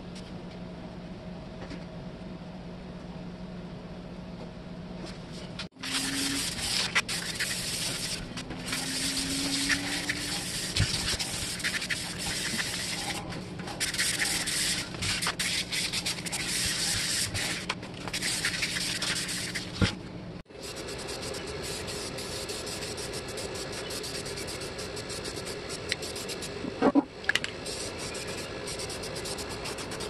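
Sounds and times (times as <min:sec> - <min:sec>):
sanding sponge rubbing metal: 0:05.8 - 0:13.2, 0:13.8 - 0:17.6, 0:27.7 - 0:30.0.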